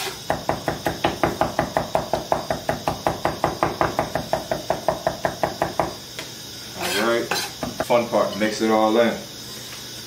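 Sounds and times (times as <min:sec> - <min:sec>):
knife chopping on wooden board: 0:00.0 - 0:06.0.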